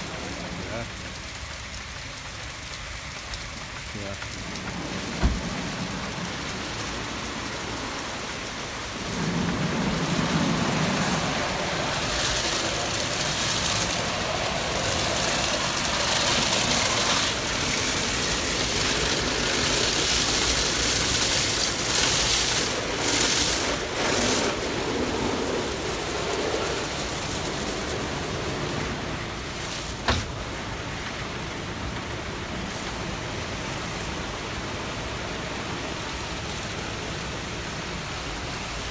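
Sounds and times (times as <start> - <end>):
car wash water and brushes: 0.0 - 38.9.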